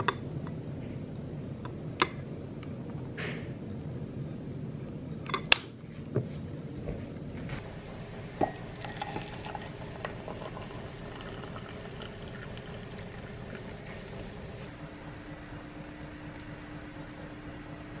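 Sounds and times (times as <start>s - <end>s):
water pouring into ceramic mug: 8.4s - 14.2s.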